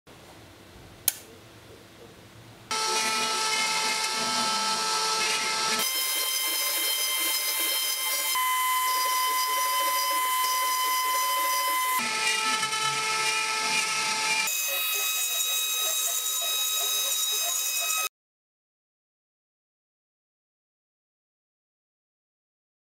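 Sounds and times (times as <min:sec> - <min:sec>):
sharp click: 0:01.0 - 0:01.3
router bit cutting wood: 0:02.7 - 0:18.1
router spindle whining: 0:02.7 - 0:18.1.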